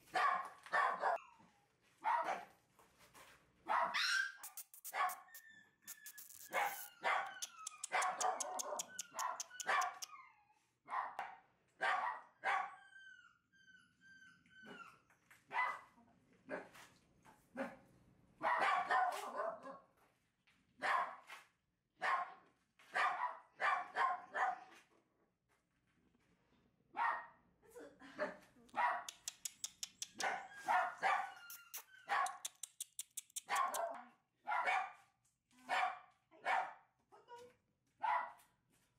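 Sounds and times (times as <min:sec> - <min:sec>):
puppy yapping: 0:03.7 - 0:10.3, 0:28.8 - 0:34.0
puppy whining: 0:04.0 - 0:10.6, 0:29.2 - 0:33.8
sharp clicks: 0:04.4 - 0:10.1, 0:29.1 - 0:30.3, 0:31.5 - 0:33.8.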